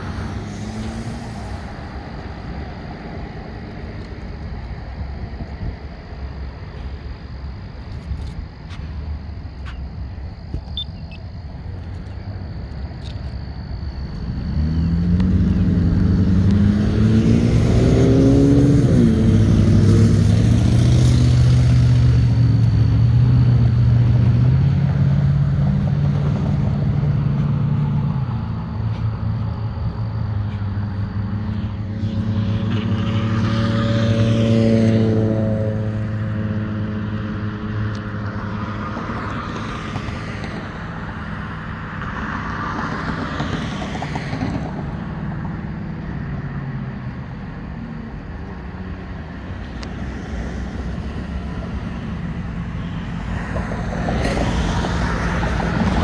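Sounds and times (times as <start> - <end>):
engine and tyre noise: 0.0 - 56.0
vehicle accelerating: 13.5 - 56.0.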